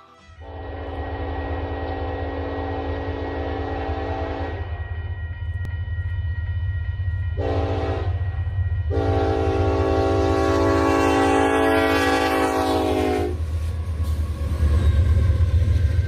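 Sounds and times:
locomotive air horn blasts: 0.0 - 4.6, 7.4 - 8.2, 8.9 - 13.4
steady low rumble: 1.0 - 10.5.

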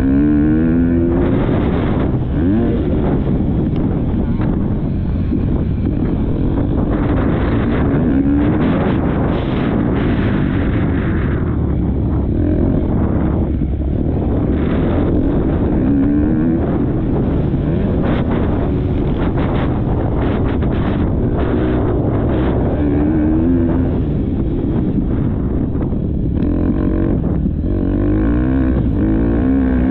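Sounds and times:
motocross bike engine revving: 0.0 - 29.9
wind buffeting microphone: 0.0 - 29.9.

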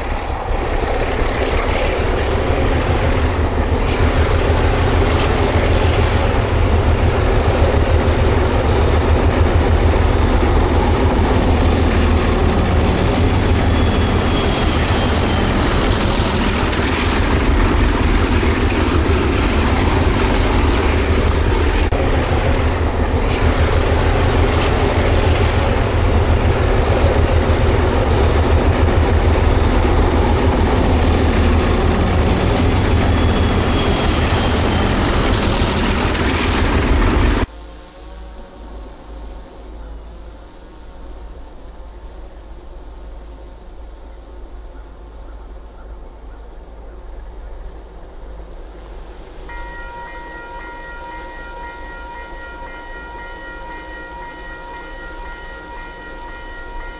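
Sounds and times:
engine droning steadily: 0.0 - 31.2.

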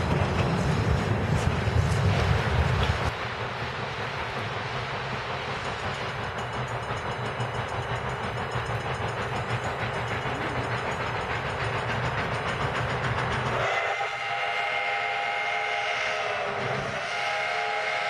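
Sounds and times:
rushing noise with low rumble: 0.0 - 6.2
steam whistle blast: 13.6 - 18.0.

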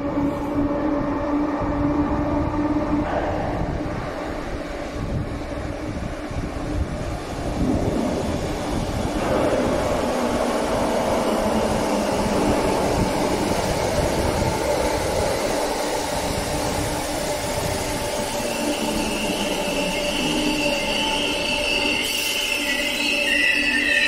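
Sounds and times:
electric train running: 0.0 - 24.0
high-pitched wheel squeal: 18.3 - 24.0.

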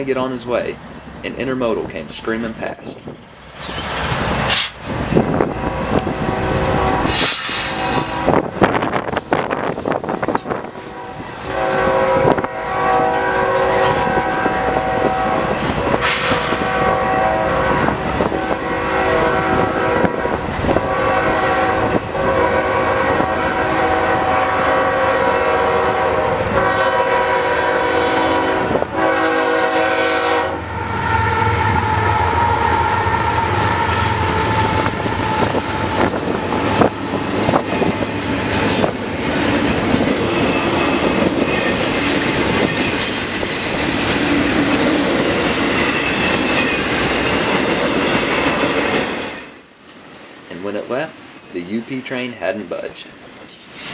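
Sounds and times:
train cars rumbling past: 0.0 - 53.9
locomotive air horn blasts: 5.4 - 8.5, 10.1 - 36.4.

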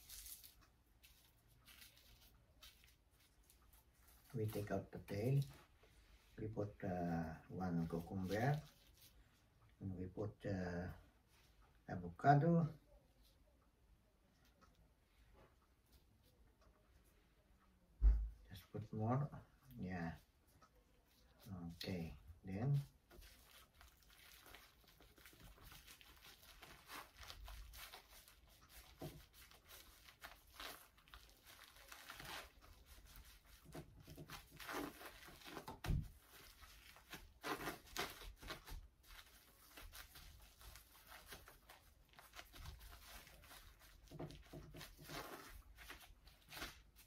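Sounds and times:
gloved hands rustling and crinkling: 0.0 - 9.9, 19.6 - 47.0.

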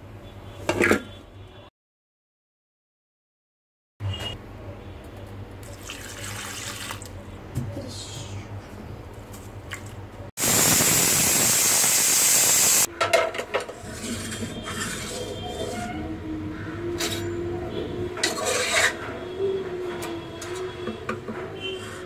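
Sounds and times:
water pouring into pot: 5.7 - 7.1.

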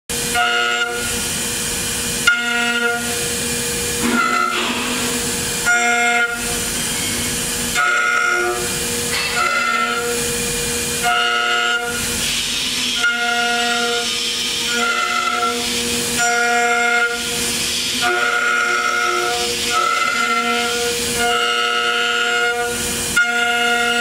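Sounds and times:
router spindle high-pitched whine: 12.8 - 17.4, 18.0 - 22.6.

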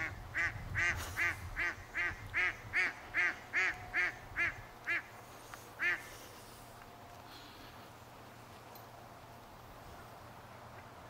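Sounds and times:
duck quacking: 0.0 - 5.1, 5.8 - 6.1.

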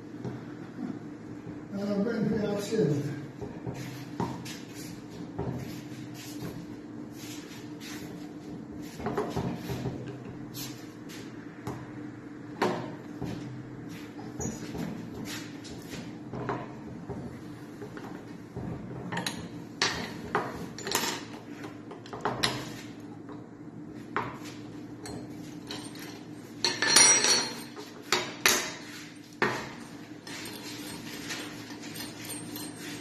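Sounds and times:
bright ringing metal clinks: 25.0 - 27.8
metal tools clinking and knocking: 25.0 - 28.6, 29.3 - 33.0.

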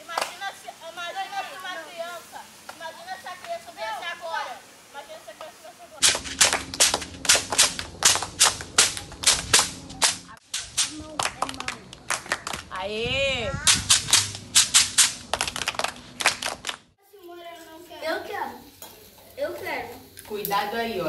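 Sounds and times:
children clapping hands: 6.0 - 10.2, 11.2 - 12.7, 13.9 - 16.9.

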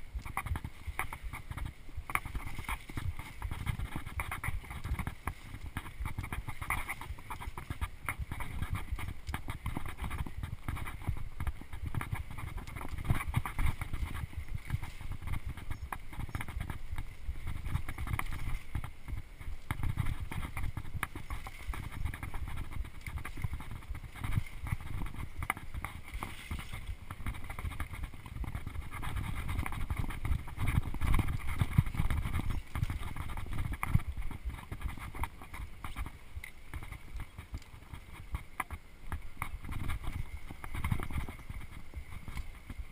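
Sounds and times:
bike rattling over bumps: 0.0 - 42.9.

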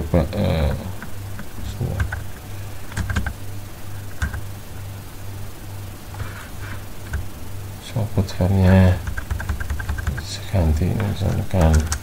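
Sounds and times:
low electrical hum: 0.0 - 12.0
computer keyboard keystrokes: 1.4 - 2.2, 2.9 - 3.4, 4.2 - 4.4, 9.0 - 10.2, 11.2 - 12.0.

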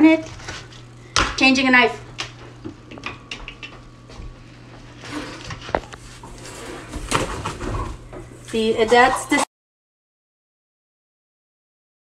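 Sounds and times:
low steady hum: 0.0 - 9.5.

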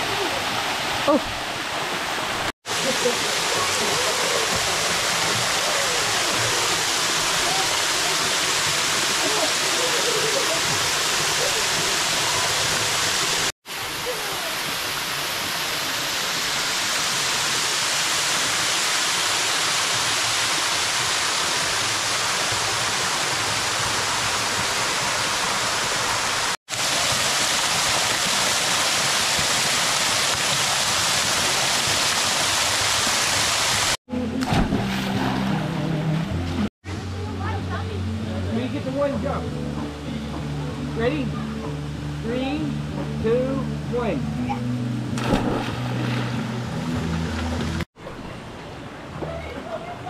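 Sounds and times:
waterfall pouring into rock pool: 0.0 - 35.1
quiet water sounds: 0.0 - 50.0.

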